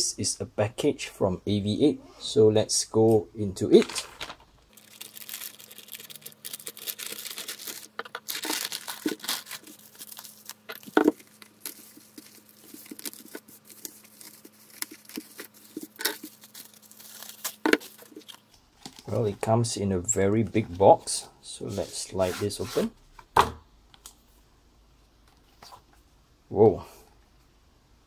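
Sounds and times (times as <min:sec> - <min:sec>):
plastic mailer tearing: 0:03.7 - 0:18.4
bubble wrap crinkling: 0:03.7 - 0:19.3.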